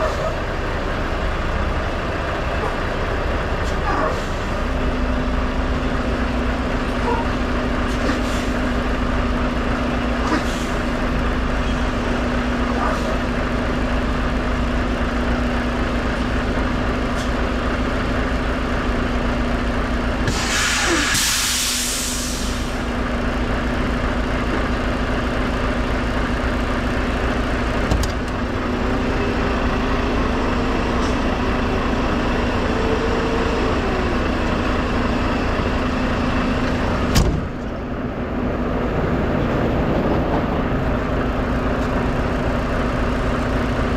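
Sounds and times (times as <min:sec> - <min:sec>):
truck diesel engine idling: 0:00.0 - 0:43.9
compressed air hissing: 0:20.3 - 0:22.8.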